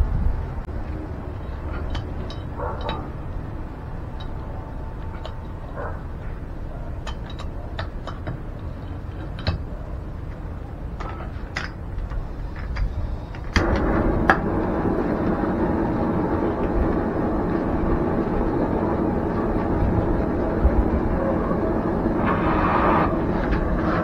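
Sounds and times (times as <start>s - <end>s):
gas torch hissing: 12.2s - 24.0s.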